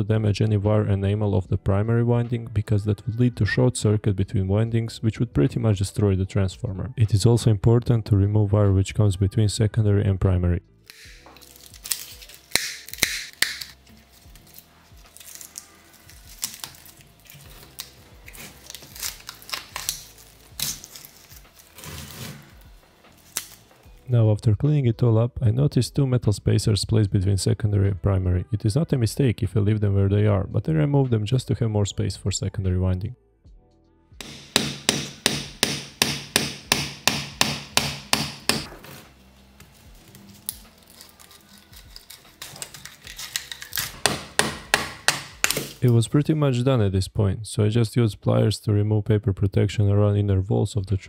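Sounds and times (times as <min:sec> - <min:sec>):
faint background music: 0:00.0 - 0:51.0
pliers clicking on steel: 0:10.9 - 0:11.2, 0:11.8 - 0:13.8.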